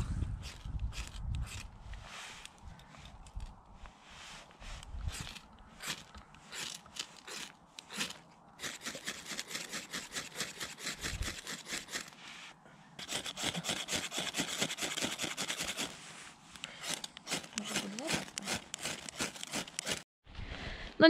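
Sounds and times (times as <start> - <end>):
fire steel scraped with striker: 5.1 - 12.2, 13.0 - 20.0.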